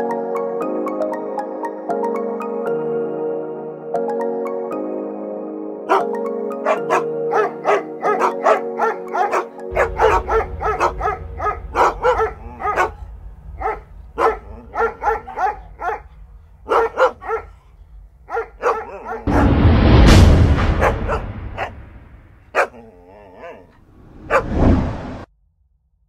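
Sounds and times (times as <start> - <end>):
background music: 0.0 - 23.7
dog barking: 5.9 - 17.7, 18.3 - 19.4, 20.8 - 21.7, 22.5 - 24.6.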